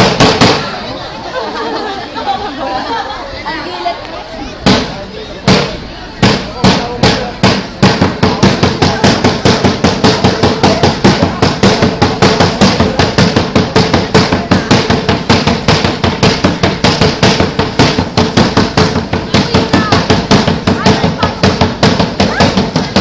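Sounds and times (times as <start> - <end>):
fast drum beat: 6.2 - 23.0.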